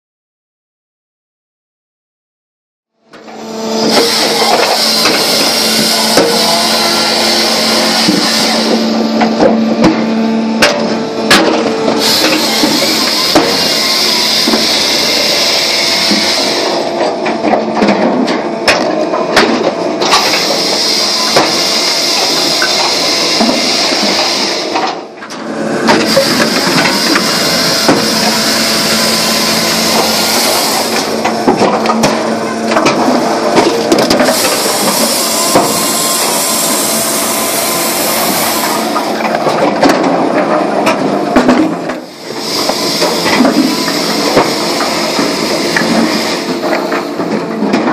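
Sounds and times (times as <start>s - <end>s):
machine hum: 3.0s - 47.9s.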